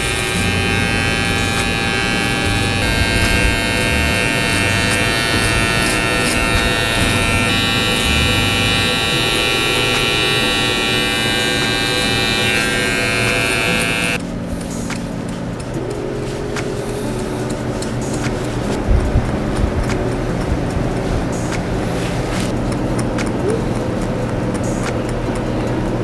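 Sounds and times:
electric hair trimmer buzzing: 0.0 - 14.2.

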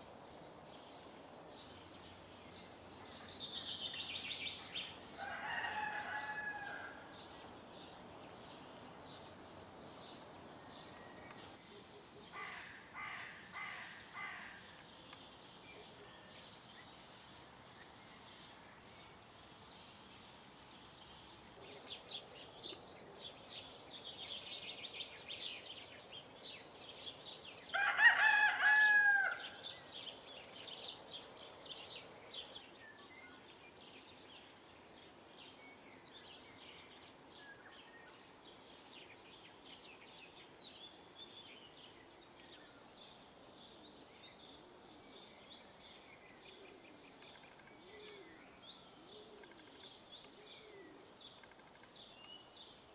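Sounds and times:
songbirds chirping: 0.0 - 52.9
rooster crowing: 5.2 - 7.0, 27.8 - 29.5.

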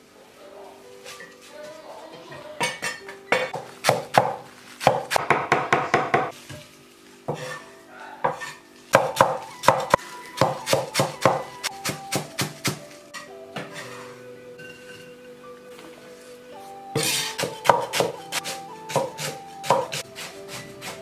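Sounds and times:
cleaver chopping on wooden block: 17.0 - 21.0.

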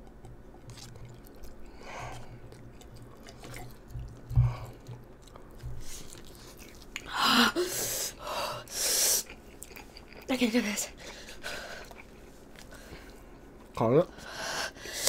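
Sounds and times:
chewing and slurping noodles: 0.0 - 7.1, 11.0 - 13.8.

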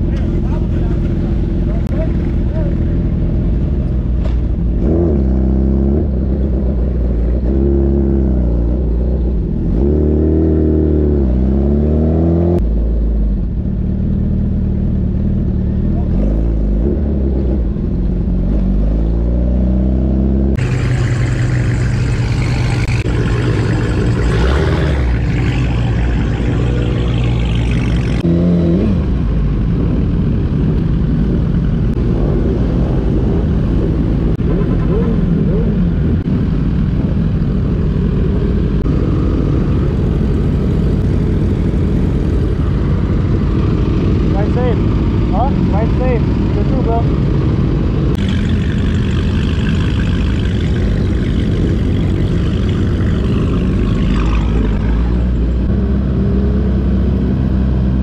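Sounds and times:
motorcycle engines revving: 0.0 - 58.0
rushing wind noise: 20.6 - 58.0.

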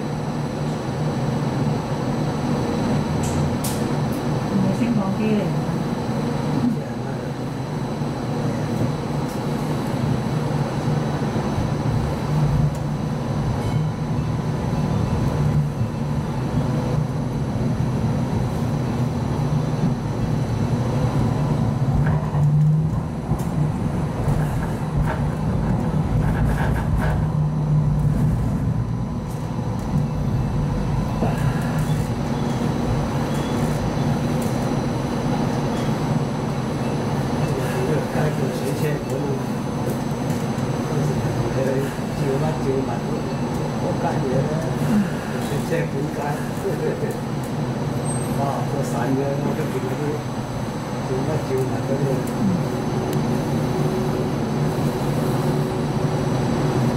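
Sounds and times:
train low hum: 0.0 - 56.9
wheel-on-rail rumble: 8.4 - 56.9.

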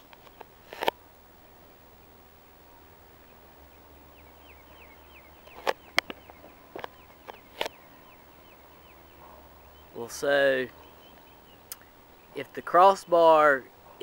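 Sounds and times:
small bird chirping: 1.6 - 14.0
sharp clicks: 5.4 - 7.8, 11.1 - 11.9.

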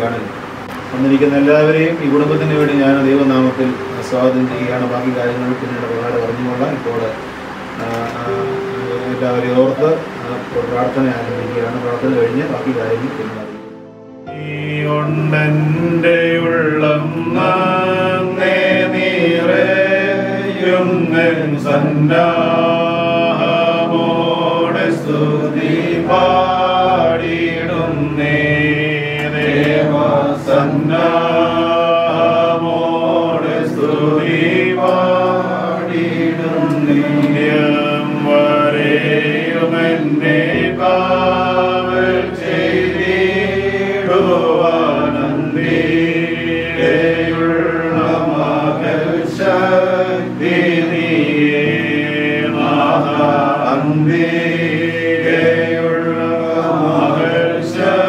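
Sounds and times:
sustained low accompaniment: 0.0 - 58.0
slow chant-like singing: 13.0 - 58.0.

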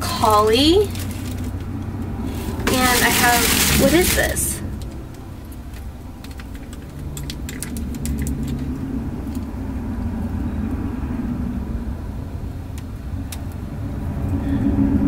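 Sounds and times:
low steady rumble: 0.0 - 15.0
packaging clicks and taps: 4.8 - 9.4.

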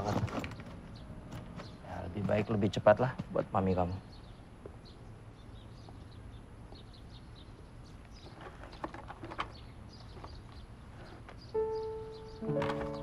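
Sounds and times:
faint bird chirps: 3.7 - 13.0.

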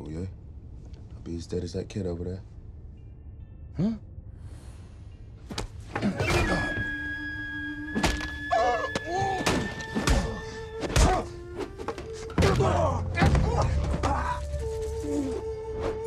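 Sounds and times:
music with long held tones: 6.2 - 13.2.

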